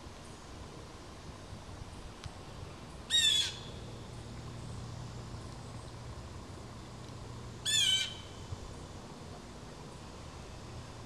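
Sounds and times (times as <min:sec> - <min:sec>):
bird calling: 0:03.1 - 0:03.9, 0:07.6 - 0:08.4.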